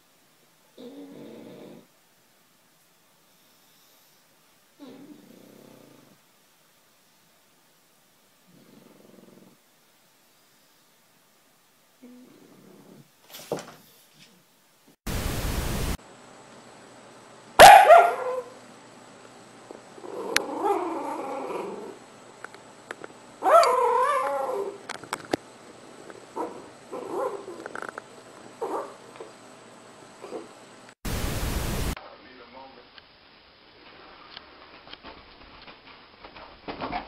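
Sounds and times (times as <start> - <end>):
static hiss: 0.0 - 16.0, 30.8 - 36.4
puppy barking and yipping: 17.6 - 18.6, 23.4 - 24.7.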